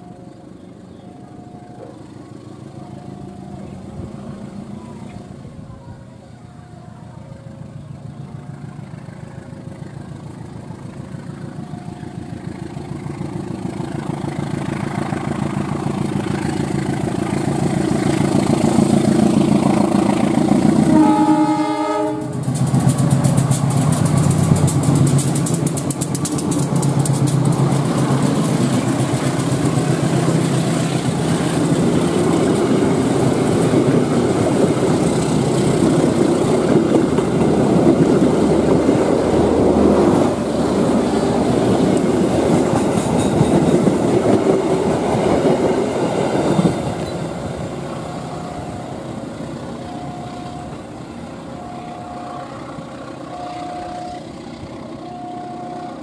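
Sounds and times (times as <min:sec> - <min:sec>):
diesel locomotive engine: 0:00.0 - 0:56.0
wheels clattering over rail joints: 0:07.6 - 0:55.2
train horn blast: 0:20.7 - 0:22.5, 0:55.1 - 0:56.0.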